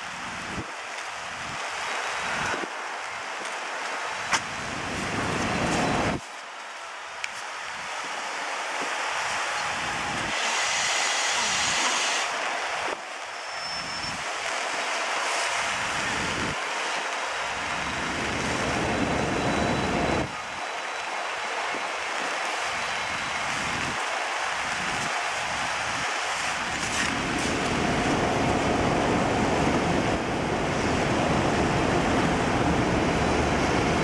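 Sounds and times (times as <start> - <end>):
rushing outdoor noise: 0.0 - 34.0
wind buffeting microphone: 9.6 - 10.4, 15.6 - 16.6, 17.5 - 20.6, 24.6 - 34.0.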